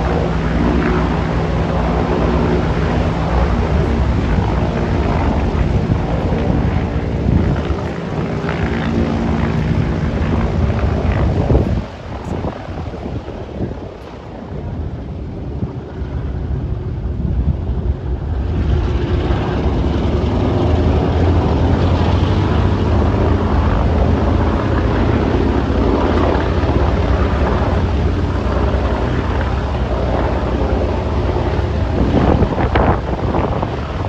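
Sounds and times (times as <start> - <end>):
propeller engines rumbling: 0.0 - 34.0.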